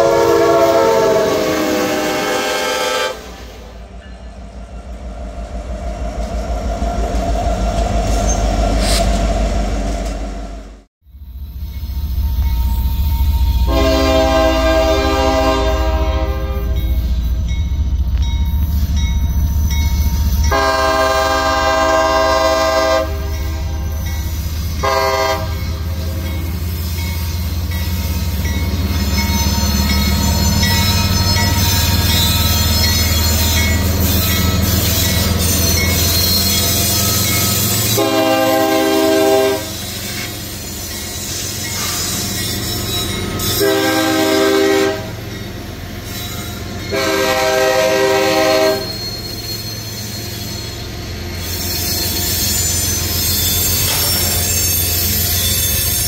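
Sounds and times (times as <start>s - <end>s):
locomotive air horn blasts: 0.0s - 3.8s, 13.5s - 17.0s, 20.4s - 24.0s, 24.7s - 26.2s, 37.9s - 39.8s, 43.5s - 45.2s, 46.9s - 49.0s
diesel locomotive rumble: 0.0s - 56.0s
wheels and brakes squealing: 3.4s - 10.2s, 11.1s - 44.5s, 45.1s - 47.3s, 47.9s - 56.0s.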